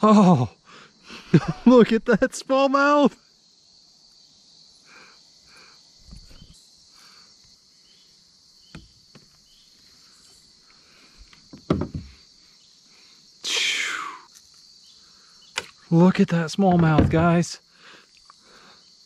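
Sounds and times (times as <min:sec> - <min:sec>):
insects chirring: 0:00.0 - 0:19.0
thumps: 0:11.5 - 0:12.2, 0:16.6 - 0:17.5
handling knocks and rustles: 0:16.7 - 0:17.4.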